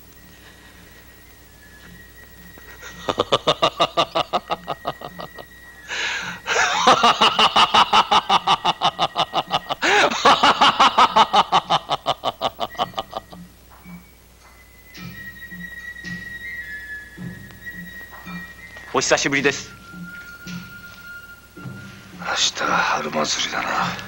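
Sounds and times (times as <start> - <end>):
man laughing hard: 2.7 - 5.4, 6.4 - 13.4
man sharp breath: 5.9 - 6.4.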